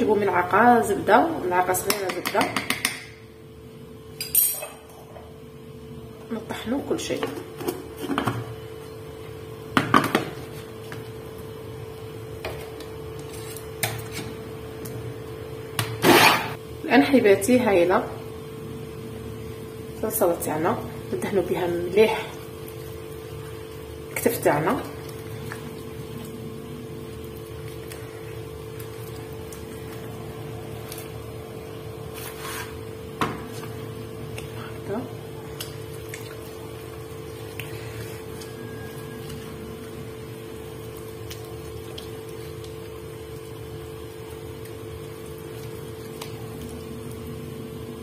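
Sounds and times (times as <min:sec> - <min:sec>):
steady hum: 0:00.0 - 0:48.0.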